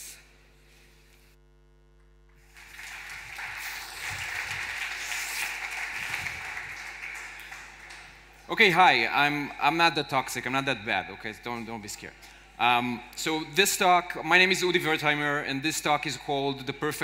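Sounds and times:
faint electrical mains hum: 0:00.0 - 0:17.0
audience applauding: 0:02.4 - 0:08.8.

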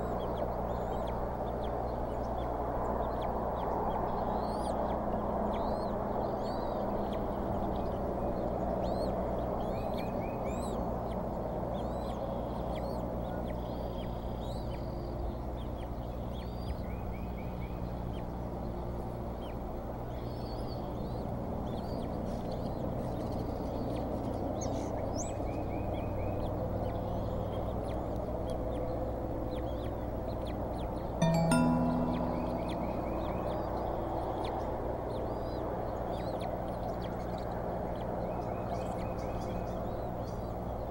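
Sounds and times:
high trills: 0:31.2 - 0:33.7.

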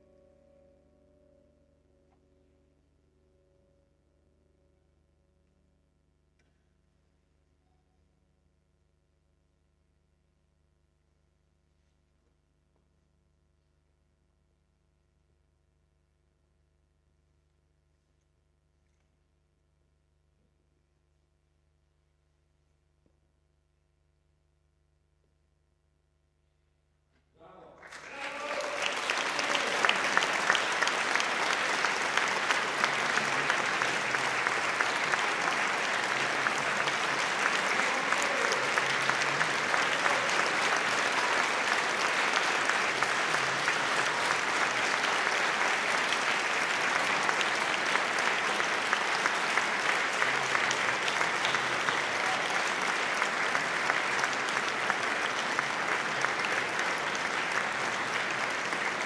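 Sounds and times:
audience applauding: 0:27.8 - 0:59.0.

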